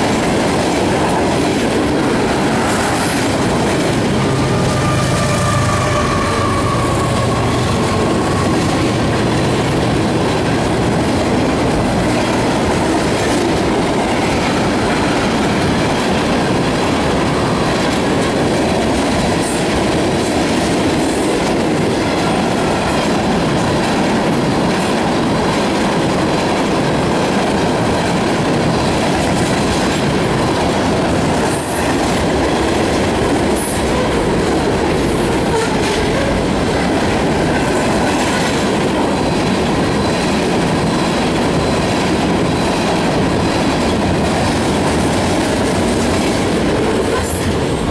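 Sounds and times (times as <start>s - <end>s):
steel wheels on rail: 0.0s - 47.9s.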